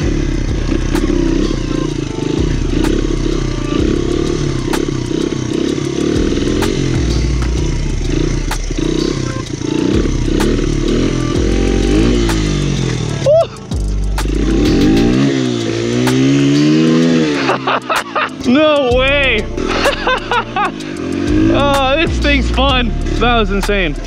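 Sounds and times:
dirt bike engine revving: 0.0 - 24.0
sharp clicks: 0.9 - 1.2, 4.6 - 18.9.

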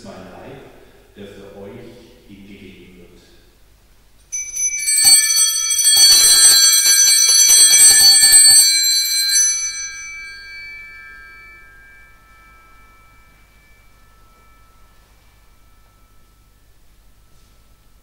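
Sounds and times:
small altar bells ringing: 4.2 - 18.0.

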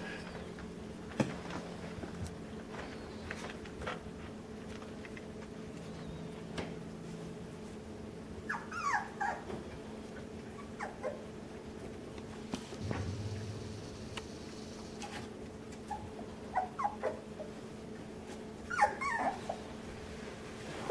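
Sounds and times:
puppy whimpering: 8.4 - 9.5, 10.5 - 11.3, 15.9 - 17.3, 18.6 - 19.6.

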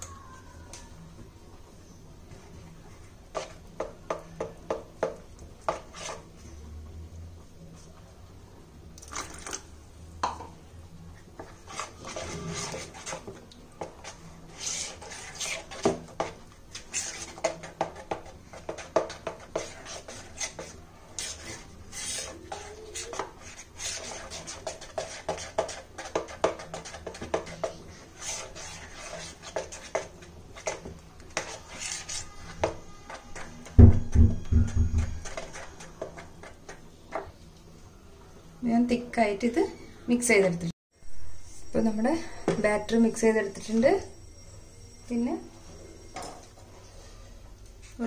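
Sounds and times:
utensil stirring batter in bowl: 1.8 - 6.7, 10.9 - 37.5.

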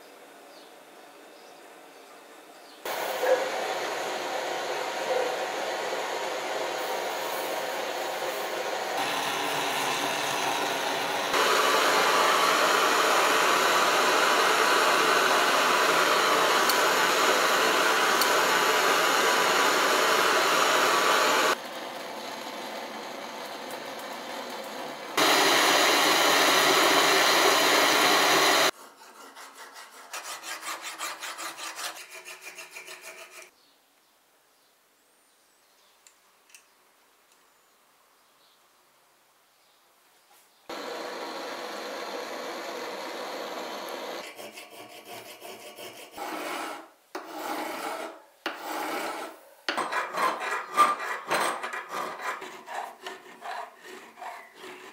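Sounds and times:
gas torch flame hissing: 2.9 - 21.6, 23.5 - 28.8.

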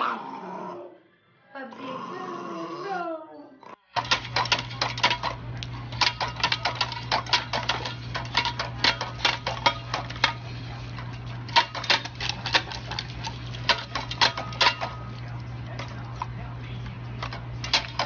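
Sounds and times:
steady low hum: 3.7 - 18.0
dogs lapping water: 4.0 - 18.0.

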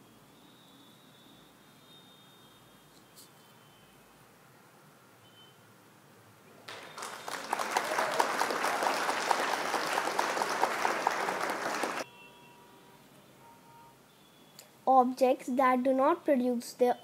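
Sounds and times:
applause sound effect: 6.7 - 12.0.

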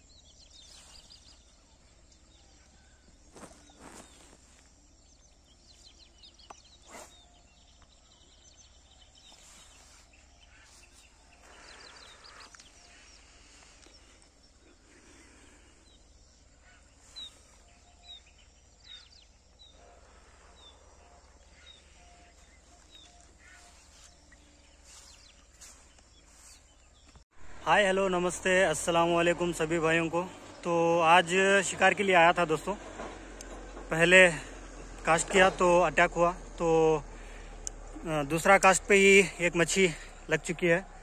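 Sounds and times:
bird chirps and calls: 0.0 - 27.2.

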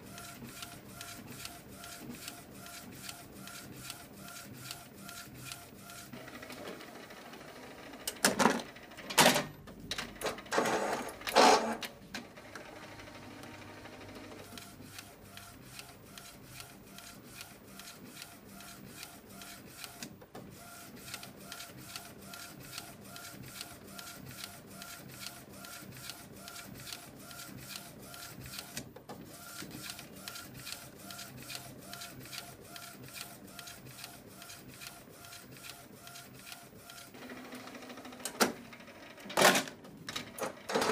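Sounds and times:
printer carriage clicking: 8.1 - 11.9, 38.2 - 38.6, 39.2 - 40.9.

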